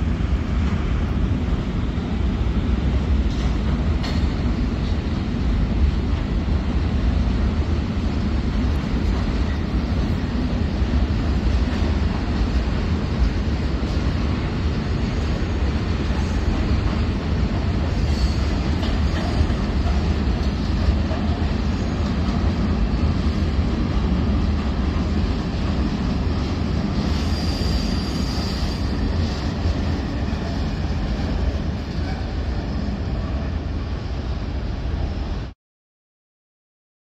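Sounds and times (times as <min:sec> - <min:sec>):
train wheels rumbling on rail: 0:00.0 - 0:35.6.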